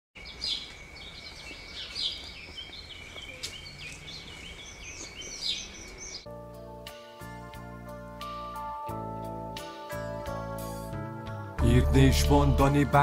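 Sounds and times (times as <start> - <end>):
birds chirping and calling: 0.2 - 6.3
outdoor background: 0.2 - 13.0.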